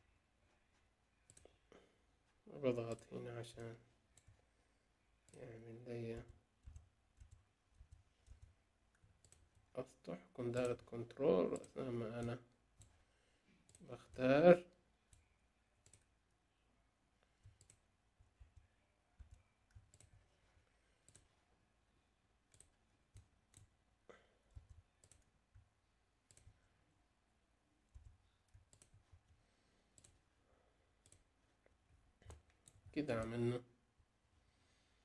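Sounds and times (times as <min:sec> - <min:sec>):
computer mouse clicks: 0:01.2 - 0:01.6, 0:06.1 - 0:09.6, 0:15.1 - 0:16.1, 0:17.3 - 0:20.4, 0:21.0 - 0:21.3, 0:22.5 - 0:23.7, 0:24.5 - 0:26.6, 0:27.9 - 0:30.2, 0:31.0 - 0:33.4.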